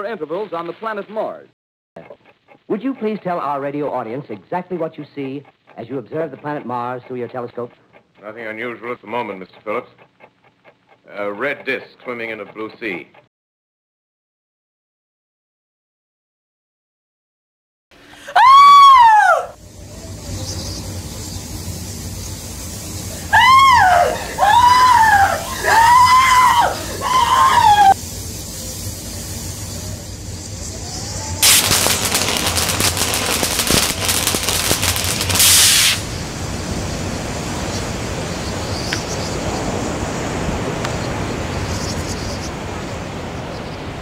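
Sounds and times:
person screaming: 18.2 - 19.6, 23.3 - 28.0
steady low hum: 19.6 - 35.4
loud crackling noise: 19.6 - 41.6.

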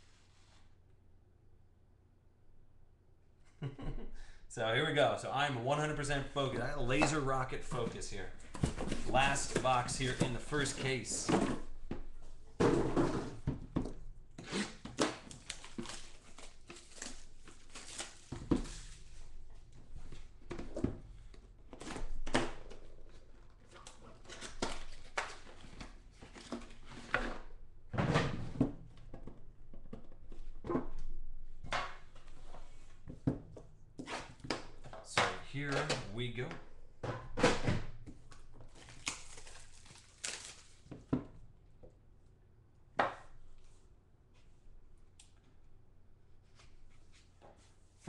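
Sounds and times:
packaging crinkling and tearing: 14.9 - 18.4, 38.7 - 40.9.

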